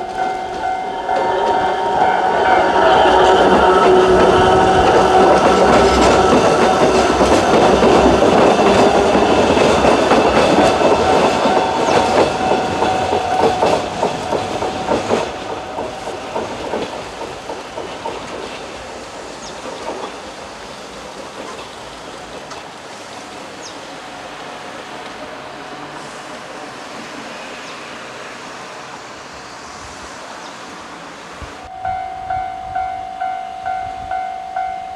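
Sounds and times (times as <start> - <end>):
electric train passing: 0.0 - 34.9
wheels clattering over rail joints: 2.7 - 22.8.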